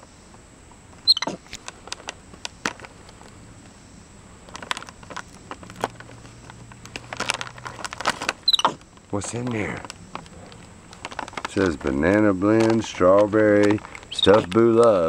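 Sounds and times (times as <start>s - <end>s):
short falling squeak: 1.0s - 1.4s, 8.4s - 8.8s
plastic bag crinkling: 1.2s - 3.4s, 4.3s - 15.0s.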